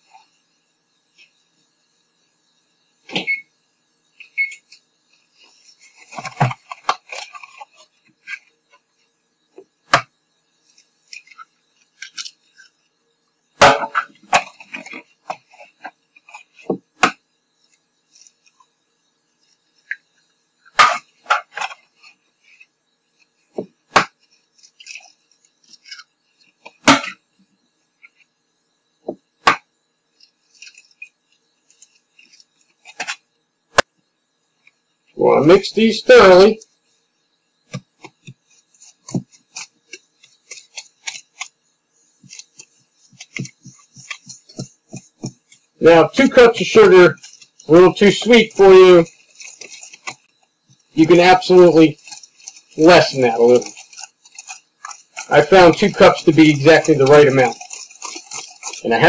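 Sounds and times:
crackling and clinking handling: 38.0 - 41.6, 42.2 - 59.0.

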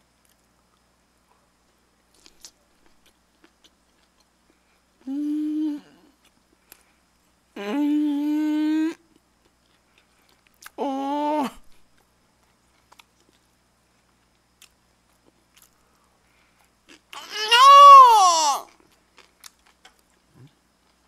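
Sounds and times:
man humming with mouth full: 5.0 - 6.2, 7.6 - 9.0.

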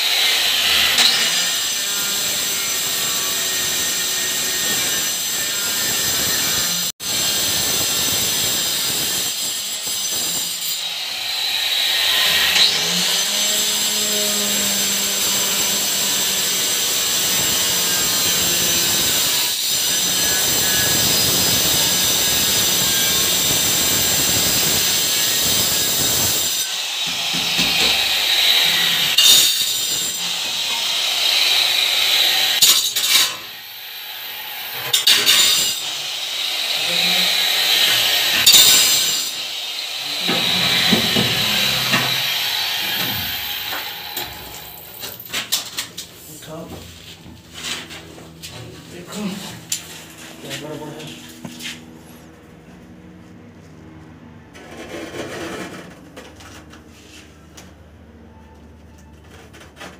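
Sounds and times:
electric tile cutter grinding tile: 0.0 - 46.7.

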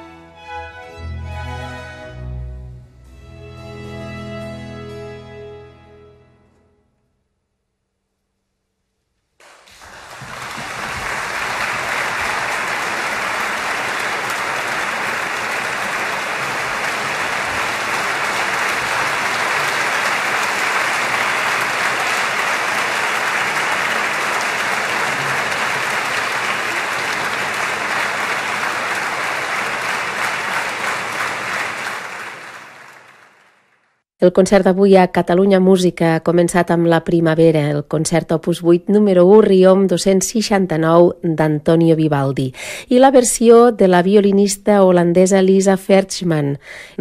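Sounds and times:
audience applauding: 9.4 - 34.0.

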